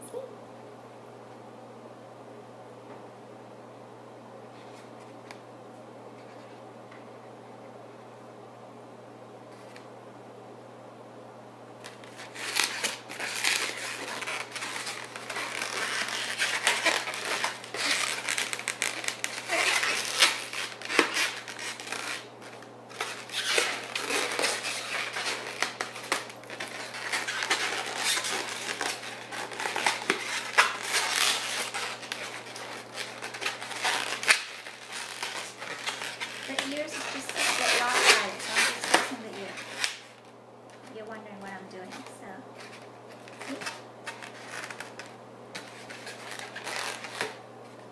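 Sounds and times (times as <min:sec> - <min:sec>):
balloons rubbing and squeaking: 0:12.1 - 0:40.1, 0:42.6 - 0:47.4.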